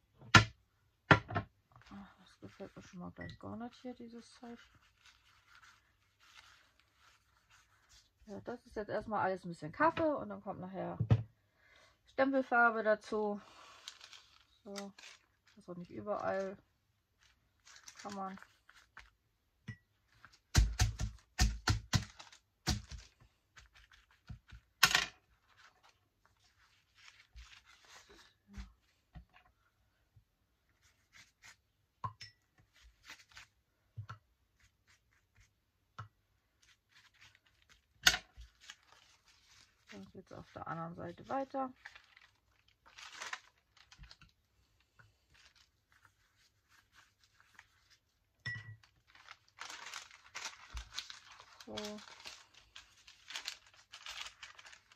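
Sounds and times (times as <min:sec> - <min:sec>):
paper crackling: 0:03.7 - 0:08.6, 0:13.0 - 0:19.2, 0:20.1 - 0:28.9, 0:32.7 - 0:33.6, 0:36.6 - 0:44.4, 0:45.1 - 0:48.2, 0:48.8 - 0:54.9
pages rustling: 0:04.1 - 0:08.3, 0:13.4 - 0:16.6, 0:17.2 - 0:19.2, 0:22.0 - 0:28.9, 0:32.7 - 0:33.6, 0:36.6 - 0:44.4, 0:45.1 - 0:48.1, 0:48.8 - 0:54.9.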